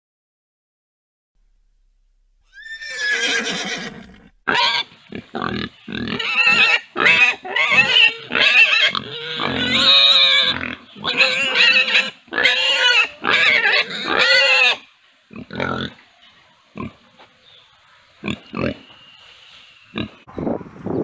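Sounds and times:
young pigs squealing: 2.5s - 16.0s, 18.2s - 18.9s.

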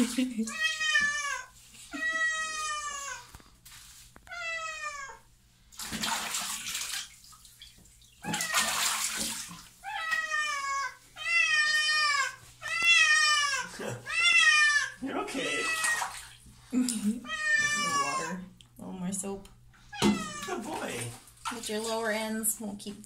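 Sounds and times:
cat meowing: 0.5s - 3.3s, 4.2s - 5.2s, 9.8s - 16.2s, 17.2s - 18.4s, 19.9s - 20.6s
water splashing: 5.7s - 10.3s, 15.0s - 18.2s, 20.0s - 22.3s.

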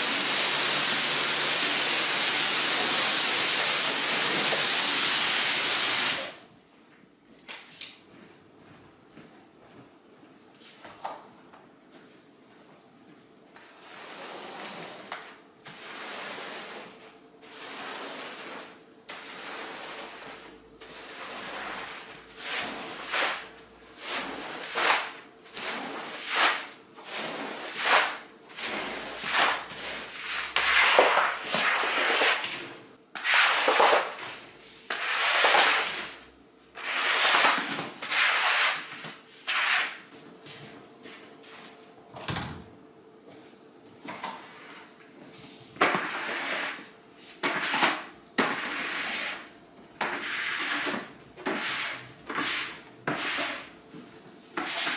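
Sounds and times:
cleaning tool scraping carpet: 24.0s - 32.6s, 34.9s - 36.1s, 36.8s - 38.9s.

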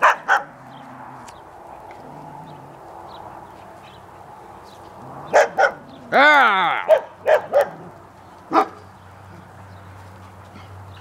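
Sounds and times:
dog barking: 0.0s - 0.5s, 5.3s - 5.8s, 6.8s - 7.8s, 8.5s - 8.8s.

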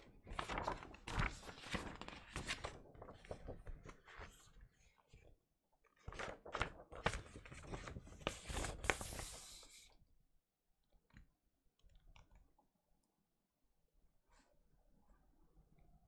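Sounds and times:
paper poster rustling and crackling: 0.0s - 9.9s.

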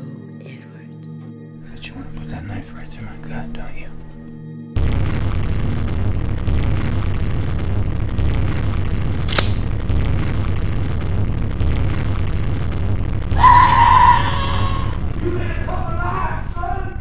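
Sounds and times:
sharp hit: 4.8s - 15.5s
deep booming pulses: 4.8s - 17.0s
man screaming: 13.3s - 17.0s.

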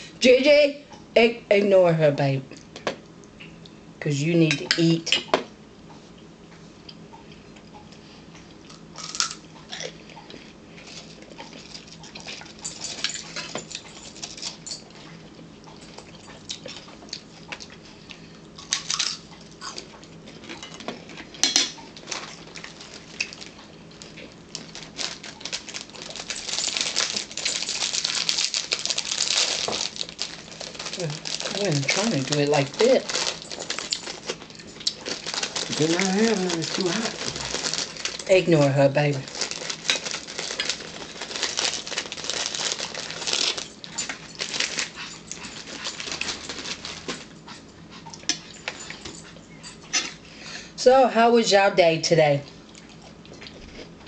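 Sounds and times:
plastic wrapper crinkling: 10.8s - 14.6s, 21.9s - 47.3s.

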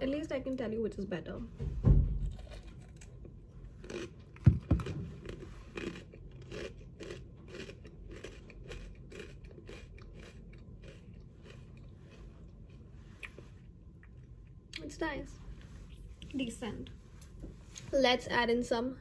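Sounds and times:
chewing crunchy cereal: 2.3s - 14.6s.

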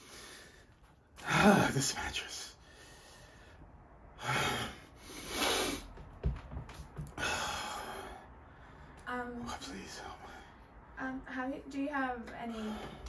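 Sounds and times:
man breathing heavily: 0.0s - 1.8s, 2.5s - 6.1s, 6.8s - 9.0s, 12.5s - 13.0s.

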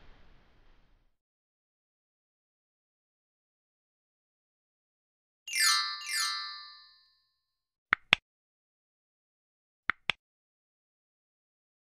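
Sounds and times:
falling chime sweeps: 5.5s - 7.0s.

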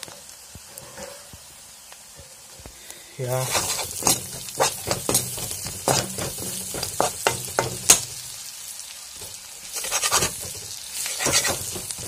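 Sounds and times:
frying sizzle: 0.0s - 12.0s
metal spatula scraping a pan: 3.3s - 8.2s, 9.2s - 12.0s.

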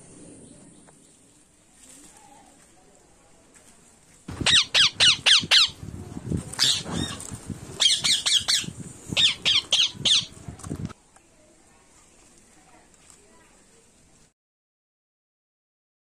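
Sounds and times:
parakeet shrill squawks: 4.3s - 5.8s, 6.6s - 7.2s, 7.8s - 10.3s.

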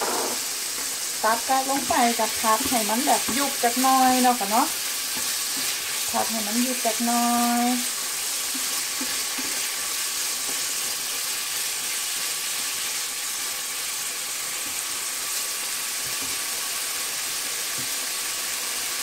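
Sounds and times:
food sizzling in a frying pan: 0.0s - 19.0s
wooden spatula stirring: 0.8s - 6.9s, 7.5s - 11.7s.

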